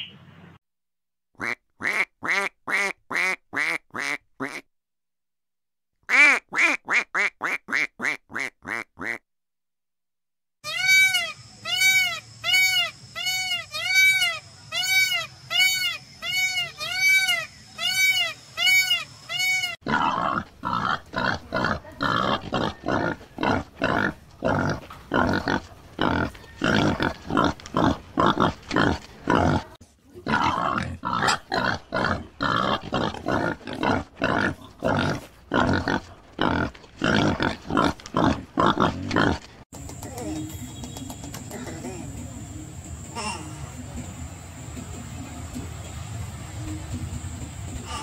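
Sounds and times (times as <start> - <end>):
animal grunting: 19.8 - 39.6.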